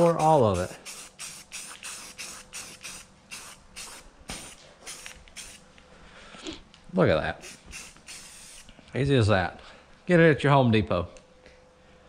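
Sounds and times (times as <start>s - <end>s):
spray paint can hissing: 0.0s - 5.6s, 7.4s - 8.7s.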